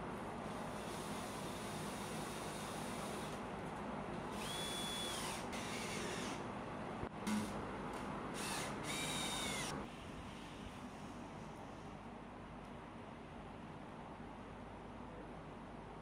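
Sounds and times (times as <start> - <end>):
cordless drill driving screws: 4.4 - 6.4, 8.4 - 9.7.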